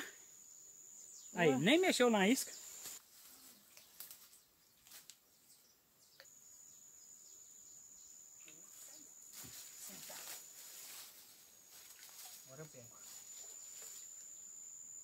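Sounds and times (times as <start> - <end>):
insect high-pitched call: 0.0 - 15.0
soft rustles: 9.3 - 14.0.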